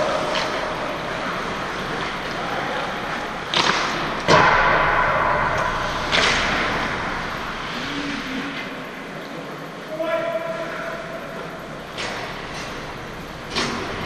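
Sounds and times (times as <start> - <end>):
sharp knocks in arena: 3.5 - 7.1, 13.5 - 14.0
skates hissing on ice: 5.8 - 8.6.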